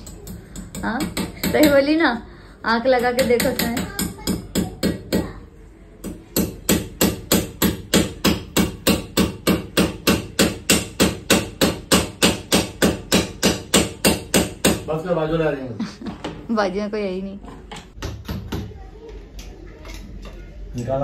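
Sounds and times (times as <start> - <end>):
hammer striking nail: 0.2 - 1.8, 6.0 - 14.9.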